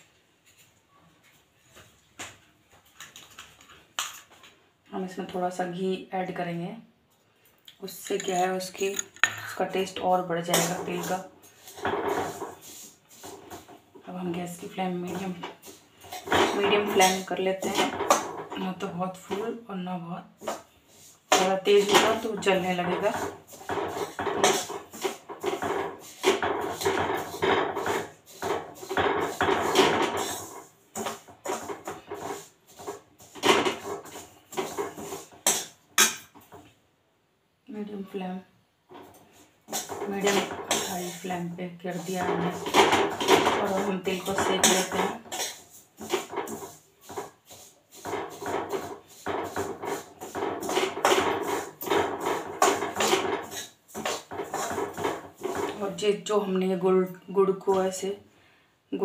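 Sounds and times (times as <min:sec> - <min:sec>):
spoon scraping seeds in pan: 0:07.8 - 0:13.8, 0:14.8 - 0:18.7, 0:20.4 - 0:36.4, 0:39.0 - 0:56.7.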